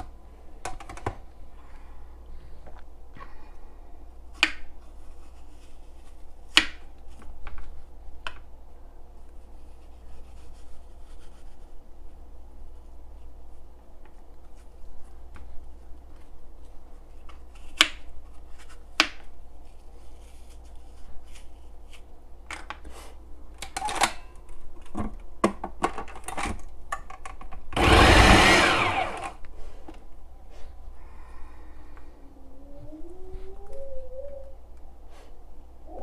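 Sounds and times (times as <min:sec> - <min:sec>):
food processor running: 0:27.8 - 0:29.4.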